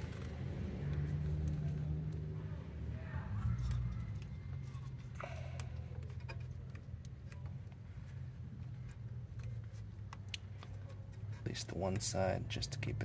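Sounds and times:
low background hum: 0:00.0 - 0:13.0
clicks and taps of handling plastic: 0:03.6 - 0:12.2.

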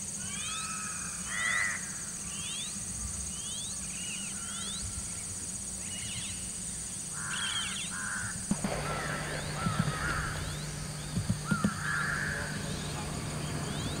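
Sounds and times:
high-pitched insect drone: 0:00.0 - 0:14.0
harsh bird calls and cawing: 0:00.1 - 0:14.0
short sharp knocks: 0:08.5 - 0:12.7.

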